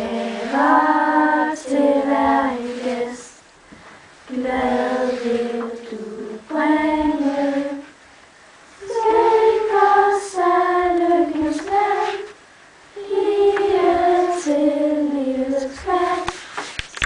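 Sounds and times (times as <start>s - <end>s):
children singing: 0.0s - 3.4s, 4.3s - 8.0s, 8.8s - 12.4s, 13.0s - 16.4s.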